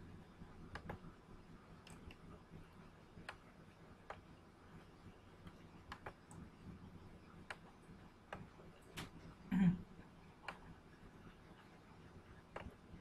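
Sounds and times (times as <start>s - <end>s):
computer mouse clicks: 0.7s - 1.1s, 1.8s - 2.2s, 3.2s - 4.3s, 5.4s - 6.4s, 7.4s - 9.2s, 10.4s - 10.7s, 12.5s - 12.8s.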